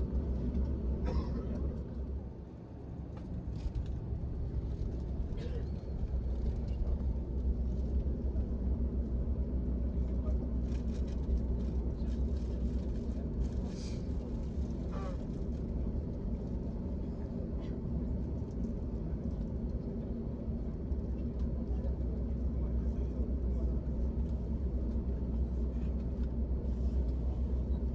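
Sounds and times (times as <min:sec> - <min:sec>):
airplane cabin rumble: 0:00.0 - 0:27.9.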